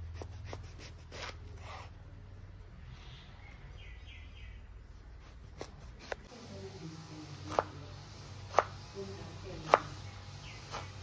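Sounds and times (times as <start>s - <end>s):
knife slicing on cutting board: 0.0s - 2.0s, 5.1s - 6.3s, 8.4s - 8.8s.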